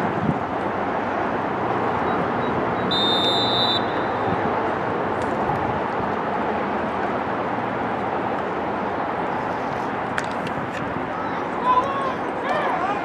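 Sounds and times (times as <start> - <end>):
outdoor background noise: 0.0 - 13.0
referee's whistle: 2.8 - 4.3.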